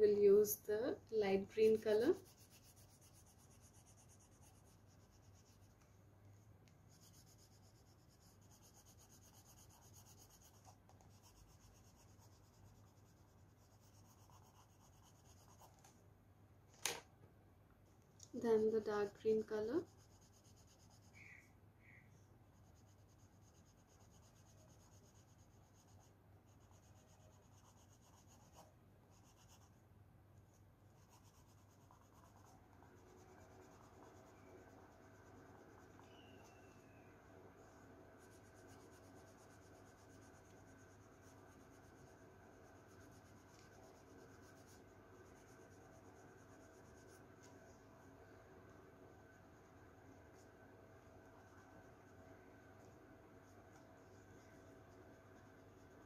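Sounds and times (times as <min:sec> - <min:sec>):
faint steady hum: 0:00.0 - 0:56.0
colouring on paper scratching: 0:01.5 - 0:05.8, 0:06.9 - 0:15.9, 0:18.6 - 0:21.5, 0:22.5 - 0:29.8, 0:30.4 - 0:36.8, 0:37.5 - 0:47.9.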